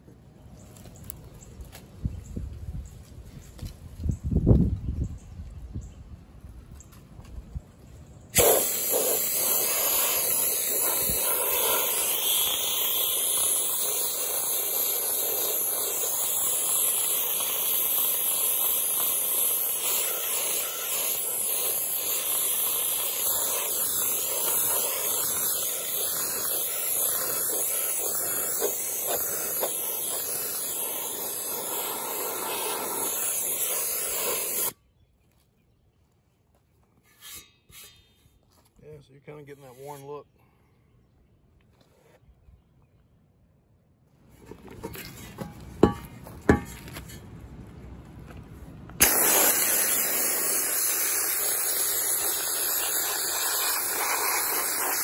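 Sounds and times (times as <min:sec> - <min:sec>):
media blaster hissing: 0:08.3 - 0:34.8, 0:49.0 - 0:55.0.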